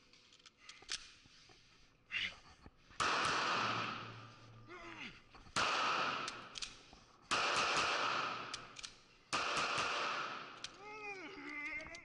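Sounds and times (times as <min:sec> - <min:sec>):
metallic gun handling clicks: 0:00.3 - 0:01.2, 0:06.2 - 0:07.0, 0:08.4 - 0:09.4, 0:10.5 - 0:10.8
pistol shots echoing: 0:03.0 - 0:04.3, 0:05.6 - 0:06.7, 0:07.3 - 0:10.8.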